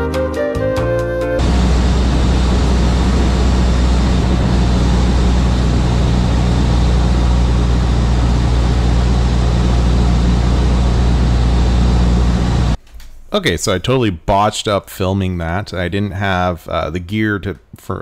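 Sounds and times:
propeller engine drone: 1.4s - 12.8s
wind noise: 1.4s - 12.8s.

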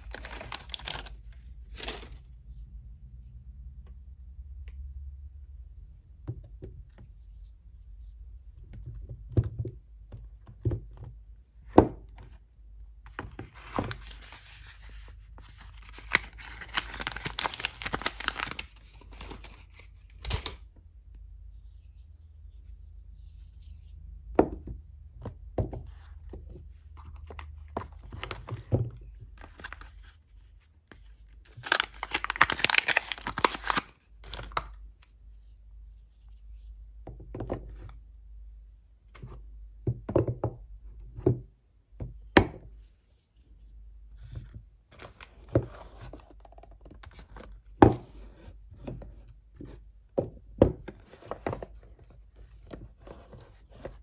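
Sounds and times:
wrappers tearing and crinkling: 0.0s - 2.2s, 15.8s - 20.6s, 31.5s - 34.6s
soap bars knocking and tapping: 39.8s - 42.7s.

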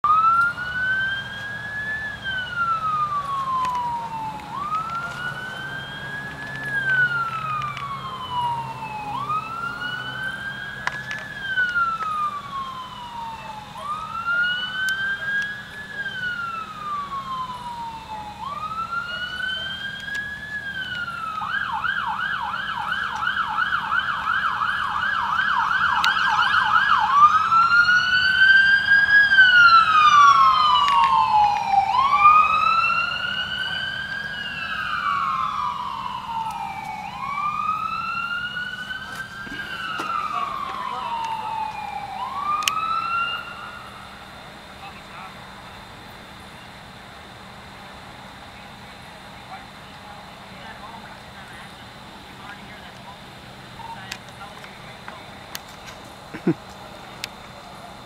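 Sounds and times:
police siren wailing and yelping: 0.0s - 45.6s.

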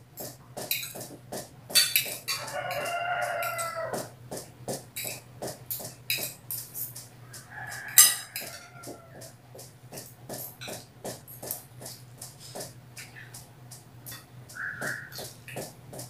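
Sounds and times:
cutlery clinking on glass plates: 1.8s - 3.8s, 7.7s - 9.1s
rooster crowing: 2.3s - 4.2s, 7.2s - 9.4s, 14.5s - 15.3s.

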